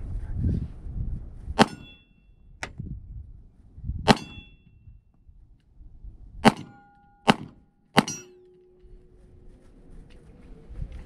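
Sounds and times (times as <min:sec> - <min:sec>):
wind rumble on microphone: 0:00.0 - 0:07.6, 0:08.8 - 0:11.0
gunshots: 0:01.6 - 0:02.0, 0:04.1 - 0:04.5, 0:06.4 - 0:08.4
steel plate target ringing: 0:01.6 - 0:02.4, 0:04.1 - 0:04.7, 0:06.4 - 0:09.0.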